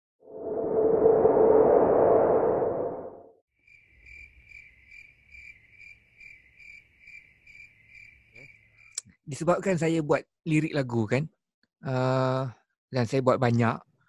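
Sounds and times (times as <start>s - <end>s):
cricket chirping: 3.6s - 9.1s.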